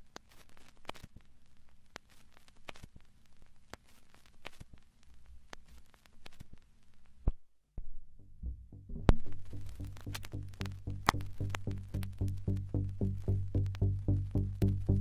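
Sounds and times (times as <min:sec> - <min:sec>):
sharp clicks and crackle: 0:00.0 - 0:07.4, 0:09.0 - 0:15.0
faint hiss and low hum: 0:00.0 - 0:08.2, 0:08.8 - 0:15.0
music: 0:08.0 - 0:15.0.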